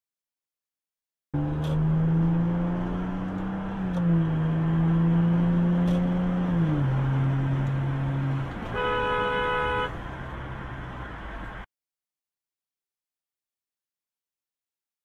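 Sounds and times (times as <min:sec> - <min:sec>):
car engine humming: 0:01.4 - 0:11.6
car horn: 0:08.6 - 0:10.0.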